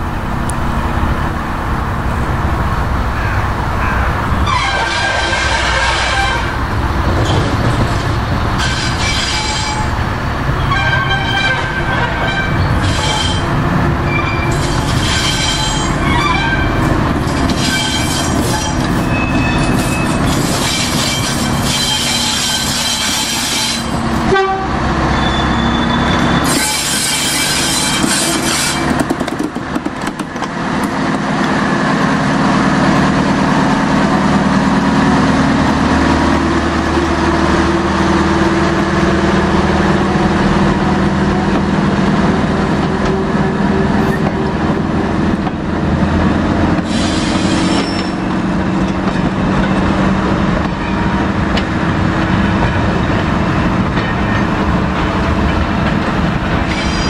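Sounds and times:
diesel locomotive engine running: 0:00.0 - 0:57.0
train wheels squealing on rails: 0:03.2 - 0:06.5, 0:08.6 - 0:10.0, 0:10.6 - 0:24.1, 0:25.0 - 0:29.0, 0:46.6 - 0:49.8, 0:56.5 - 0:57.0.

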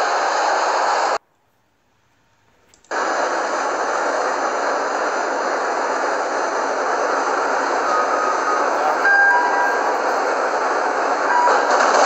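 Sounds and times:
machine whirring: 0:02.7 - 0:12.0.

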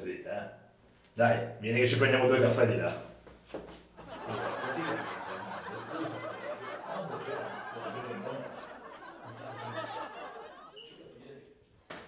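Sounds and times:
men chuckling: 0:04.0 - 0:10.8.

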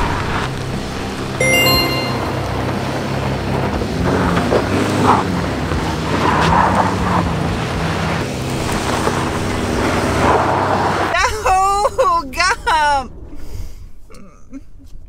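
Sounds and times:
car engine under load: 0:02.4 - 0:11.2.

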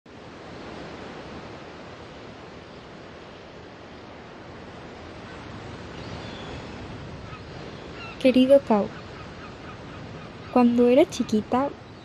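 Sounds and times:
rushing outdoor ambience: 0:00.1 - 0:12.0.

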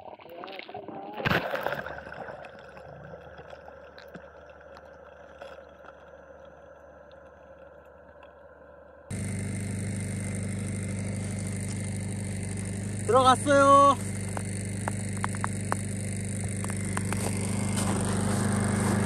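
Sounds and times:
vehicle engine idling: 0:04.5 - 0:19.0
thrusters whining: 0:09.1 - 0:19.0.

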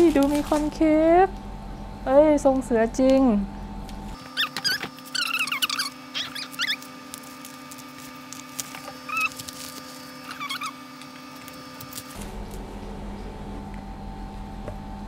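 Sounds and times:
steady hum: 0:00.0 - 0:15.0
high squeaky calls: 0:04.3 - 0:07.0, 0:09.0 - 0:11.0.

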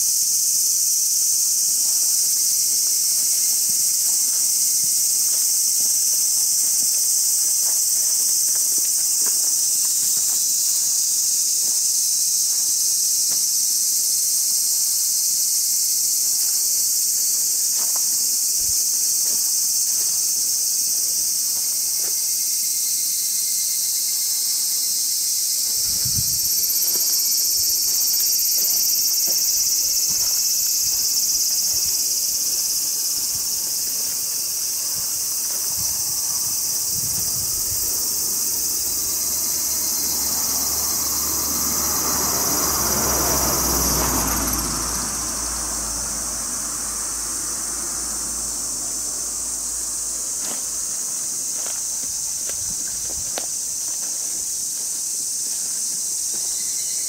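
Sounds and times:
insects chorus: 0:00.0 - 0:57.0.

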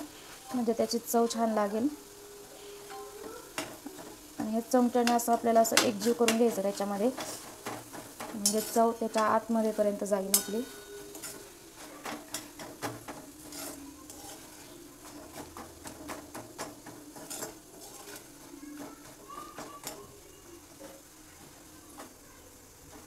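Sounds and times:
soft sizzle: 0:00.0 - 0:23.0
metal spoon stirring and scraping: 0:00.1 - 0:22.3
spoon clicking against pan: 0:05.0 - 0:06.6.

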